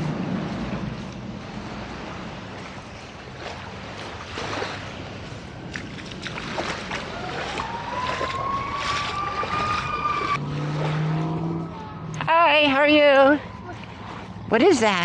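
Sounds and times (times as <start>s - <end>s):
low engine hum: 0.0s - 15.0s
small waves lapping: 0.0s - 15.0s
distant motor whine: 6.9s - 14.8s.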